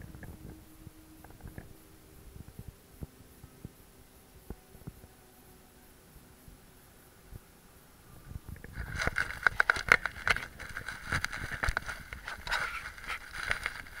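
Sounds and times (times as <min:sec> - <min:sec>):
camera handling clicks and scrapes: 0:08.7 - 0:14.0.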